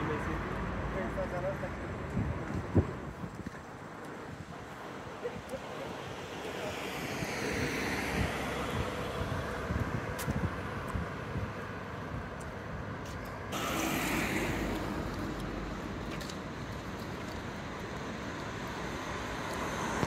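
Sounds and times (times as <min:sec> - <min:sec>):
vehicle passing: 0:13.6 - 0:20.0.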